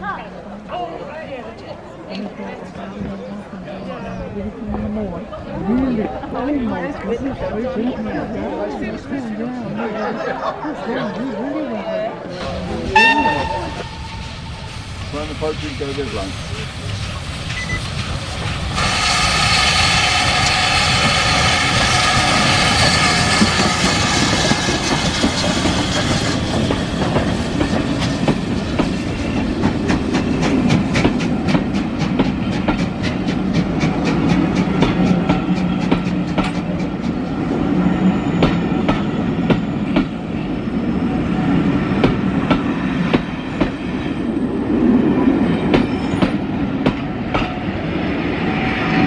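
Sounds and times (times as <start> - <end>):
train rumbling past: 11.9 - 49.0
steam locomotive whistle: 12.9 - 14.7
wheels clacking over rail joints: 17.5 - 37.3.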